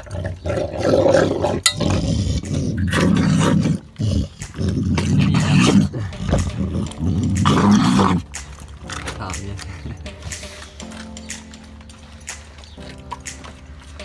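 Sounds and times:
dog growling: 0.0 - 9.2.

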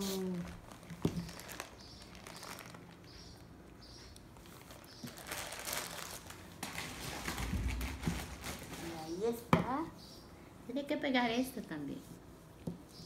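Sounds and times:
rustling handling noise: 0.0 - 9.6.

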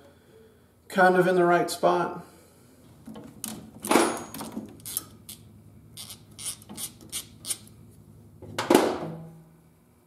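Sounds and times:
metal brake lines scraping: 4.1 - 8.0.

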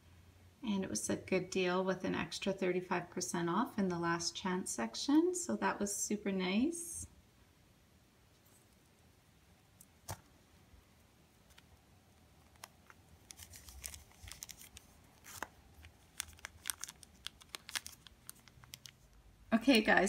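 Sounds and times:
plastic bags crinkling: 12.4 - 19.2.

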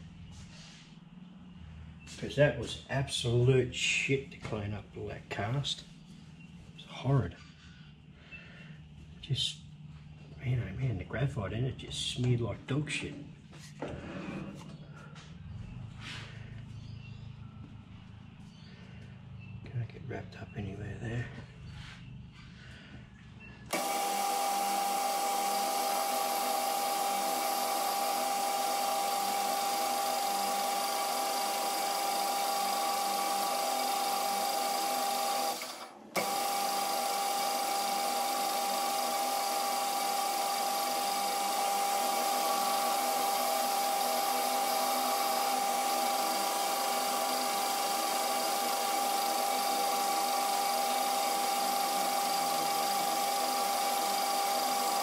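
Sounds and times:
metal lathe whining: 23.7 - 55.0.

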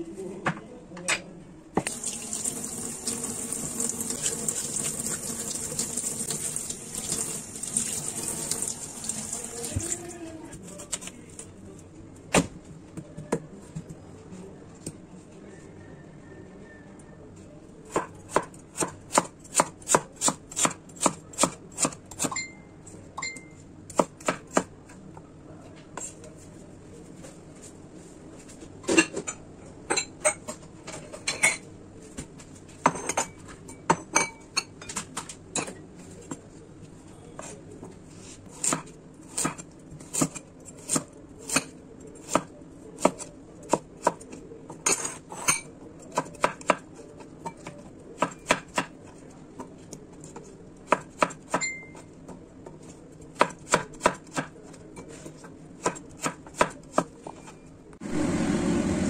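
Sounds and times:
knife chopping on cutting board: 17.9 - 22.3, 47.5 - 49.0, 50.9 - 51.6, 52.6 - 54.6, 55.4 - 57.5.

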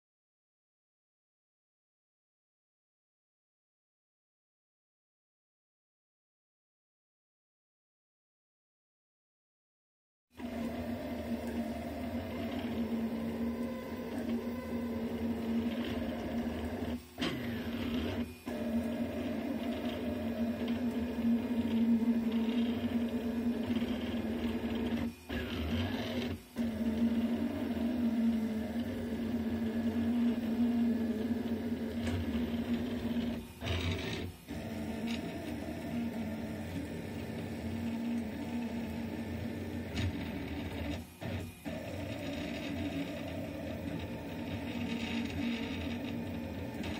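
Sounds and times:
stepper motors whining: 10.4 - 46.9
three-d printer humming: 10.4 - 46.9.

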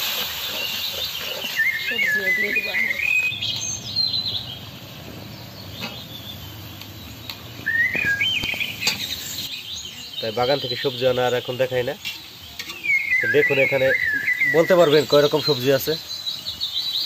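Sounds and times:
bird whistling rising notes: 0.5 - 10.1, 12.7 - 15.1.

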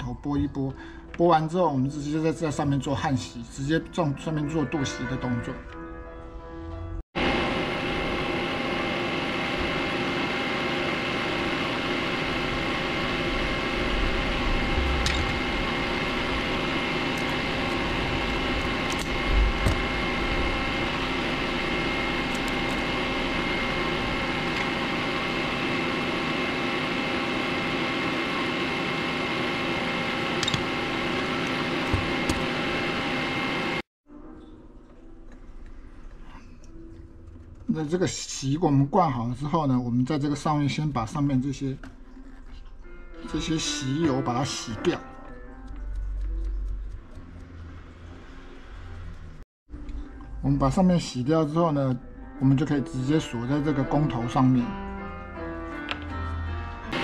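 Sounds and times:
electric fan whirring: 7.2 - 33.9.

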